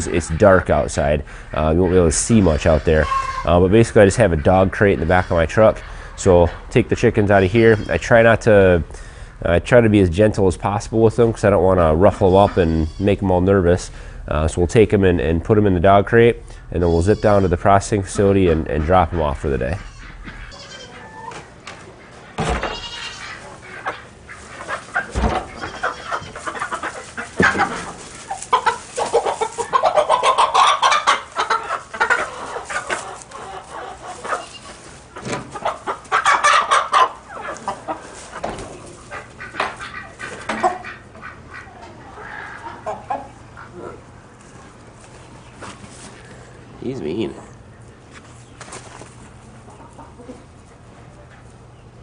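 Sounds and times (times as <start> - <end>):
chickens squawking and clucking: 0.0 - 52.0
rustling in straw: 22.7 - 40.2.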